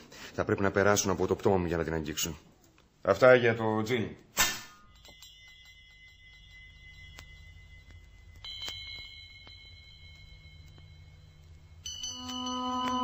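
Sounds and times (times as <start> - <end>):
low steady hum: 4.7 - 13.0
high tinkling chimes: 4.8 - 13.0
music: 5.0 - 13.0.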